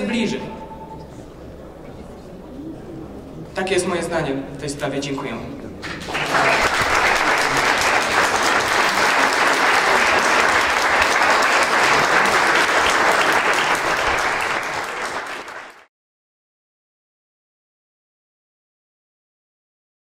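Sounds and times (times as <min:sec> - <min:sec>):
audience applauding: 0:05.8 - 0:15.9.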